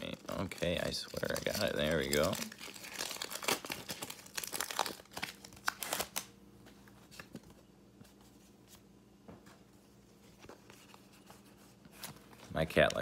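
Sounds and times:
foil wrapper crinkling and tearing: 0.0 - 6.3.

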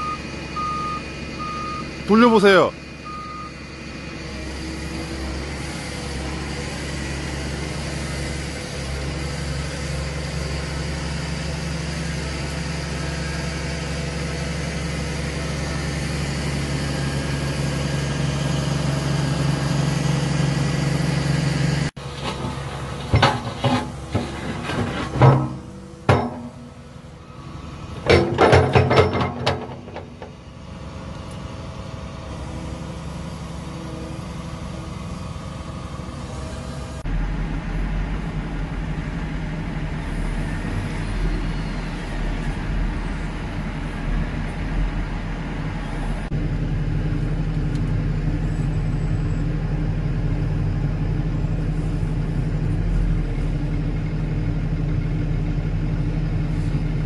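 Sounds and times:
excavator diesel engine running: 0.0 - 57.0
loud metal clanks: 22.0 - 26.8, 28.0 - 30.3.

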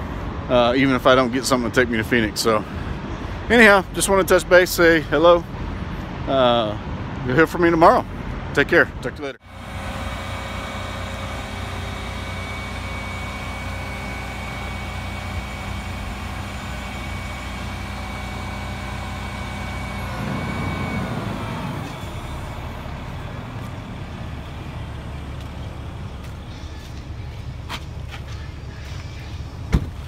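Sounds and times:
thin whine: 9.4 - 27.6
diesel engine running: 9.4 - 30.0.

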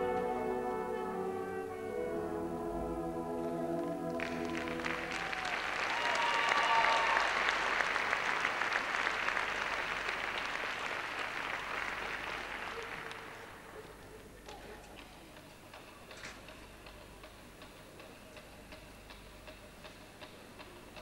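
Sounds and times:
crowd applauding and cheering: 3.7 - 13.8.

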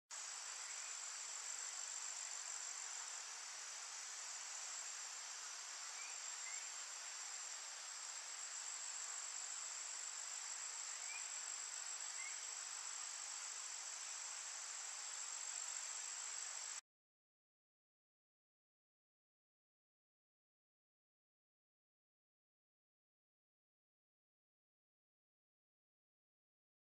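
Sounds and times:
insects droning in chorus: 0.1 - 16.8.

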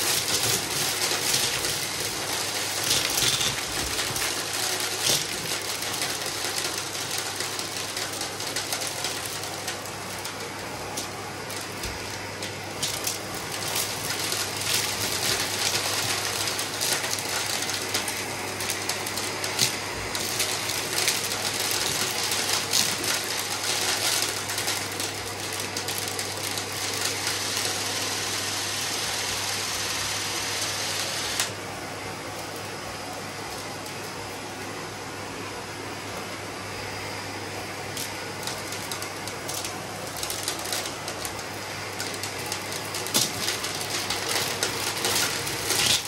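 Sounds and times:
debris clicking in vacuum: 0.0 - 28.3, 37.8 - 46.0
vacuum cleaner running: 0.0 - 46.0.

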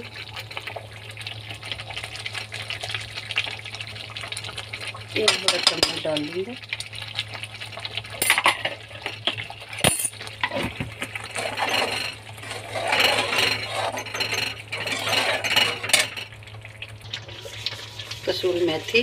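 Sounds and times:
steel spatula scraping a pan: 11.2 - 16.2.

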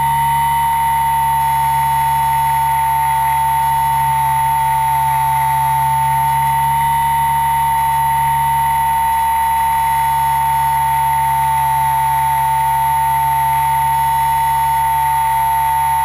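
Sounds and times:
rc aircraft motor whine: 0.0 - 16.0.

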